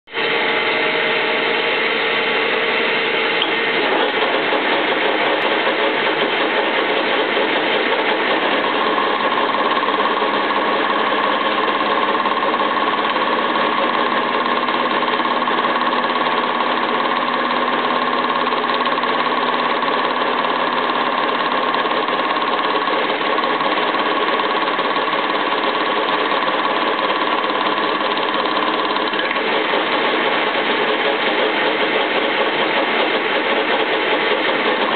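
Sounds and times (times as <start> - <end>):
high-pitched machine whine: 0.1 - 34.9
metal lathe cutting: 0.1 - 34.9.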